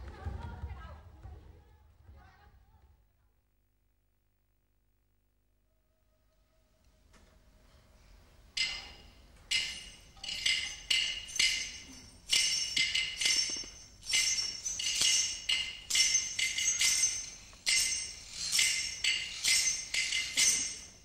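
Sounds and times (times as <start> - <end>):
small metal percussion strokes: 7.6 - 21.0.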